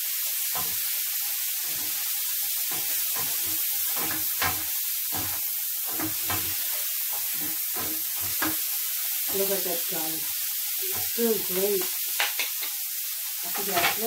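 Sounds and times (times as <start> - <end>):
prawns sizzling in frying pan: 0.0 - 14.0
wooden spoon scraping a pan: 1.5 - 9.9, 13.5 - 14.0.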